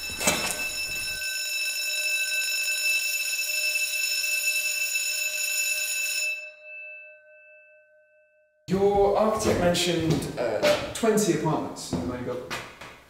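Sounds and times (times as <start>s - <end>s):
fire alarm ringing: 0.0s - 8.6s.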